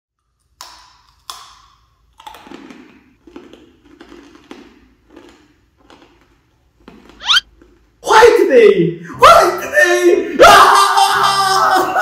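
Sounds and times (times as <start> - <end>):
hard candy crunching: 0.2 - 7.8.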